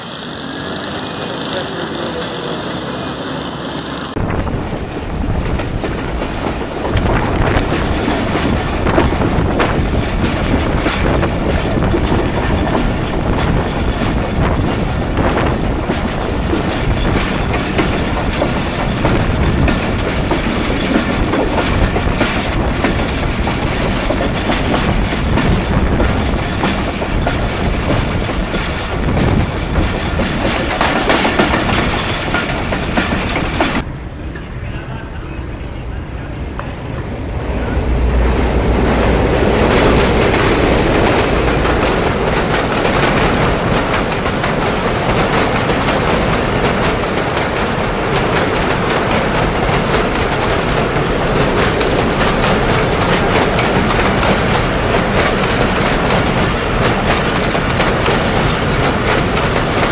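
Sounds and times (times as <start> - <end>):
wheels clacking over rail joints: 0.0 - 34.4, 38.8 - 59.9
train wheels rumbling on rails: 0.0 - 59.9.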